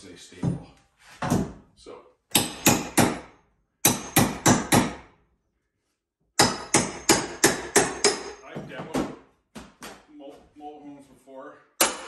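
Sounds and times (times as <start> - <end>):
hammer striking steel pry bar: 2.3 - 5.1, 6.4 - 8.4, 11.8 - 12.0.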